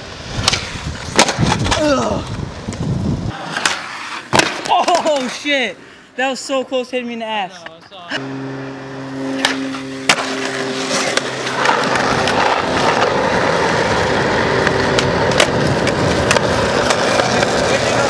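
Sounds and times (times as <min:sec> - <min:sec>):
skateboard wheels rolling on asphalt: 0:00.0 - 0:07.0, 0:07.8 - 0:18.0
skateboard clacking on ground: 0:00.3 - 0:05.6, 0:14.5 - 0:18.0.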